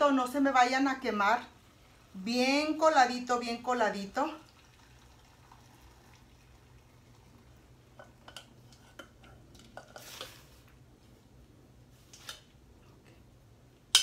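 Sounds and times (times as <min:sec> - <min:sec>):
liquid pouring splash: 0:04.4 - 0:07.5.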